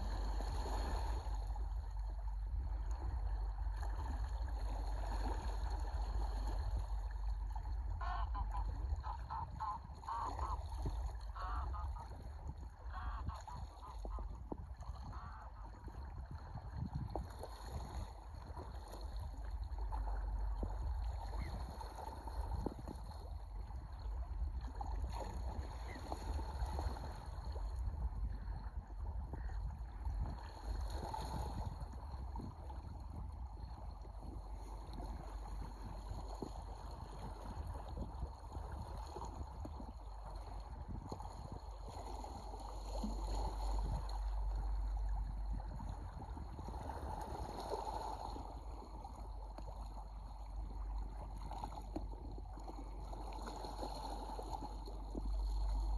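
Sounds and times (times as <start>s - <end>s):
wind and waves rumble: 0.0s - 55.9s
flock of sea ducks calling: 8.0s - 12.2s, 12.9s - 15.7s.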